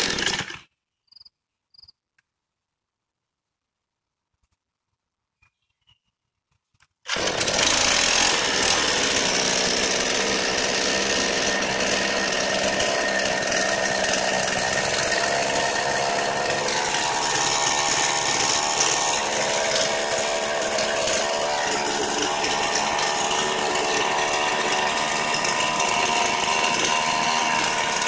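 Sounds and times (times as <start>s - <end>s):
chainsaw running: 0.0s - 0.7s, 7.1s - 28.0s.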